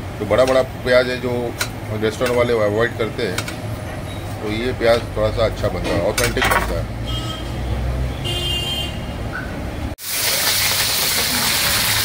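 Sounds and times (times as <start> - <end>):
low kitchen hum: 0.0 - 7.0
hot oil hissing in a wok: 10.0 - 12.0.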